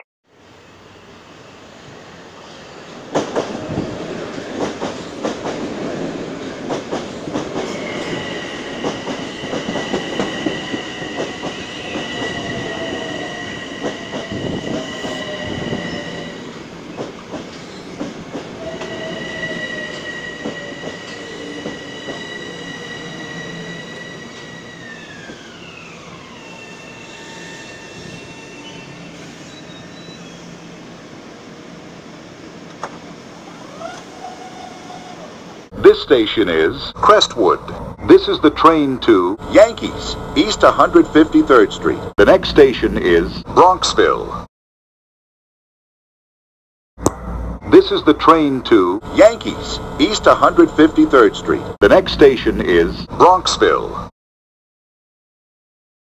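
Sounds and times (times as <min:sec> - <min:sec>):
electric train whine: 0:07.6 - 0:35.7, 0:47.1 - 0:52.8.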